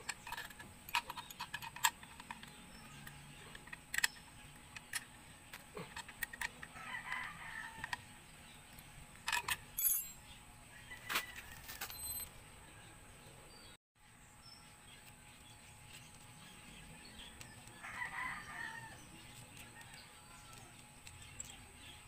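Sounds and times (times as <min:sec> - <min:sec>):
rooster crowing: 0:06.7 - 0:08.0, 0:10.7 - 0:12.0, 0:17.8 - 0:19.0.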